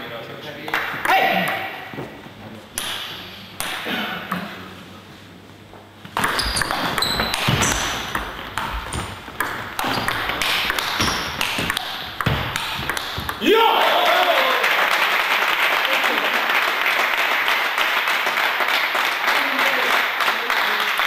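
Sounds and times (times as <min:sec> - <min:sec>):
ping pong ball hitting paddles: 0:02.8 - 0:04.5, 0:06.1 - 0:13.4
ping pong ball bouncing on table: 0:06.2 - 0:08.7, 0:09.4 - 0:13.4.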